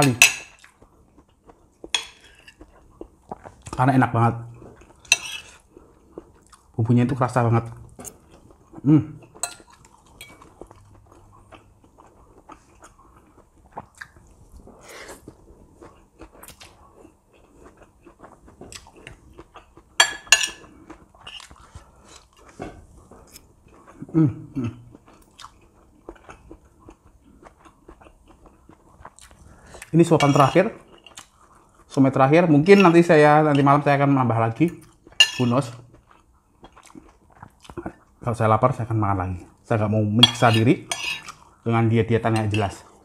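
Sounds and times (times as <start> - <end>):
close-up chewing: 0.5 - 3.8, 4.5 - 6.8, 7.9 - 20.0, 20.6 - 24.2, 24.8 - 32.0, 34.6 - 38.2
cutlery scraping and clinking on plate: 1.9 - 2.7, 5.0 - 5.6, 20.0 - 21.5, 30.1 - 31.2, 32.6 - 33.7, 35.2 - 35.8, 40.2 - 41.4, 42.3 - 42.8.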